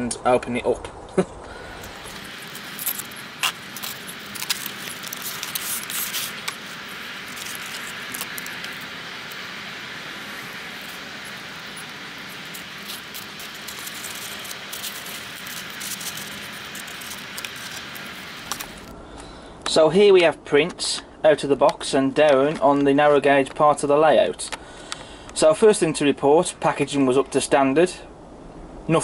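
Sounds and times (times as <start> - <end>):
steady hiss: 1.4 - 18.9
packaging clicks and rustles: 1.5 - 18.9.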